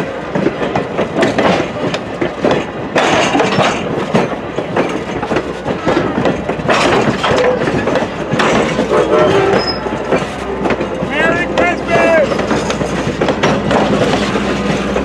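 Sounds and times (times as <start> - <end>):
train wheels clicking over rail joints: 0.0 - 15.0
wheel squeals: 8.5 - 10.4.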